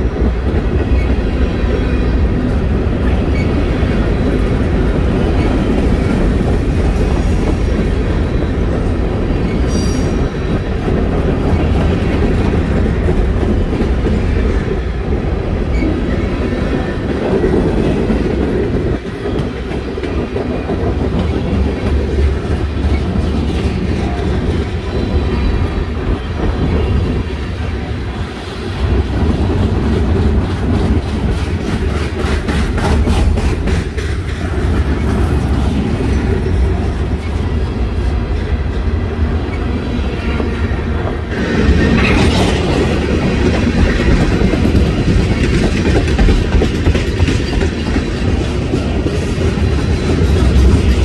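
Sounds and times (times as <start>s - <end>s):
freight train rolling past: 0.0s - 51.0s
wheels clacking over rail joints: 29.0s - 39.0s, 40.5s - 51.0s.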